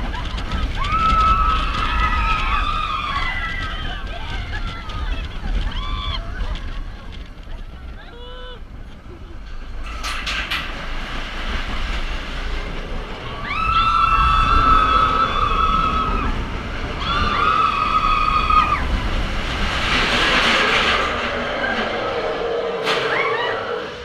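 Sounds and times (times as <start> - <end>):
roller coaster rumbling on track: 0.0 - 24.0
high-pitched squeals: 20.0 - 24.0.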